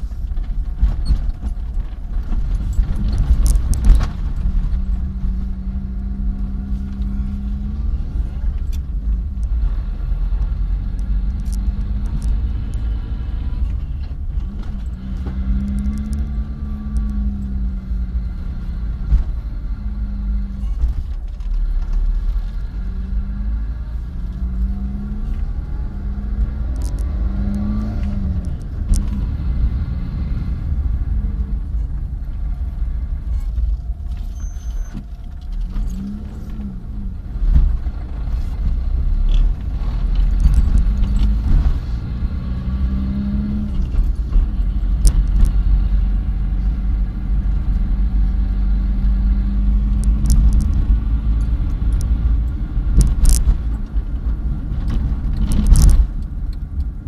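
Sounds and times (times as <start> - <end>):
clicks and rattles: 0.0 - 5.5, 37.4 - 41.9, 49.9 - 57.0
car engine and road rumble: 0.0 - 57.0.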